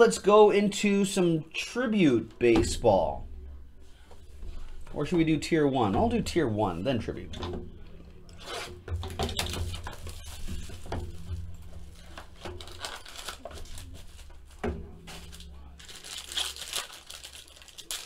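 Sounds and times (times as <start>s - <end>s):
plastic and foil crinkling: 8.4s - 18.0s.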